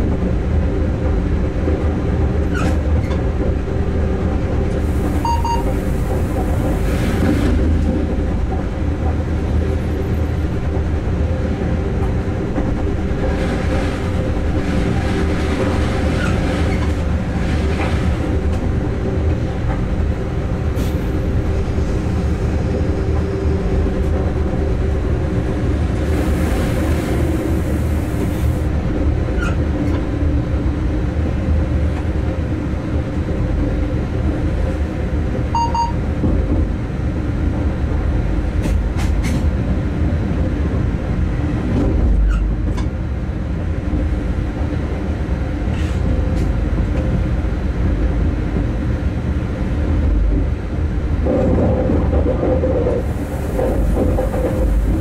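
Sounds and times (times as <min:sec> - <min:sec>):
locomotive machinery drone: 0:00.0 - 0:55.0
wheel-on-rail rumble: 0:36.1 - 0:55.0.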